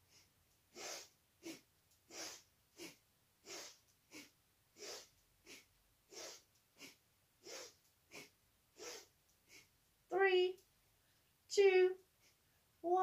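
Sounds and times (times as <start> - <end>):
rapid breathing through nose: 0.0 - 9.8, 12.2 - 12.7.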